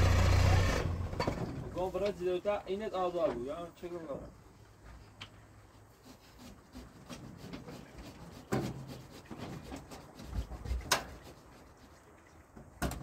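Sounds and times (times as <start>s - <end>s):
scuffing and rubbing of climbing: 4.8s - 11.8s.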